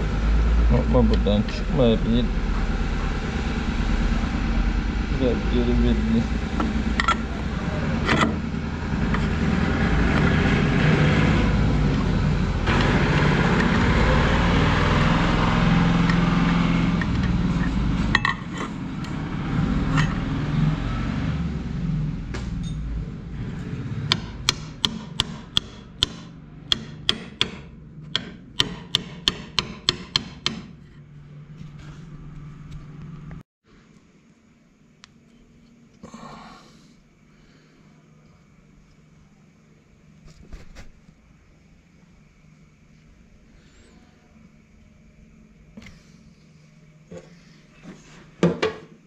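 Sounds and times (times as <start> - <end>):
loud steady rumbling: 0.0 - 33.4
hammer tapping metal: 24.0 - 30.8.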